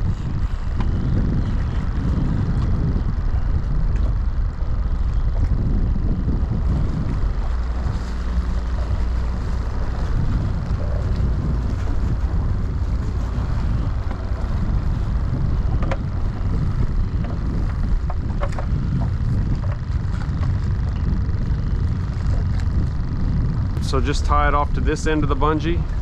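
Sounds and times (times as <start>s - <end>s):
water lapping against boat hull: 0.0s - 26.0s
wind buffeting microphone: 0.0s - 26.0s.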